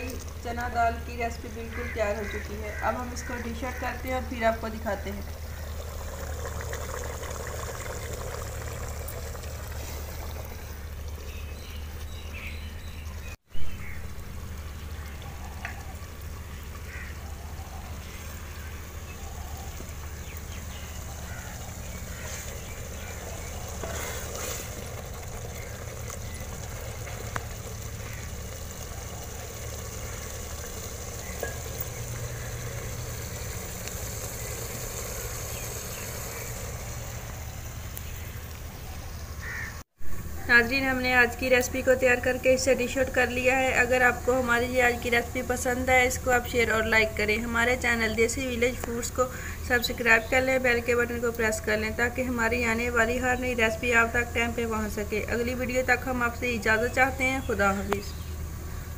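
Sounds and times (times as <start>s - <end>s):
low outdoor rumble: 0.0s - 58.9s
ladle stirring thick dal in pot: 22.0s - 28.2s.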